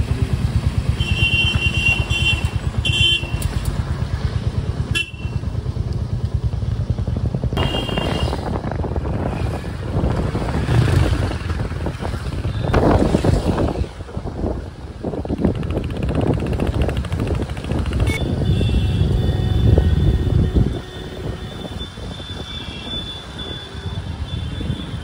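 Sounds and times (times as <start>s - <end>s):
road and wind noise: 0.0s - 25.0s
vehicle horn beeping: 1.0s - 3.4s, 7.6s - 8.4s, 18.1s - 25.0s.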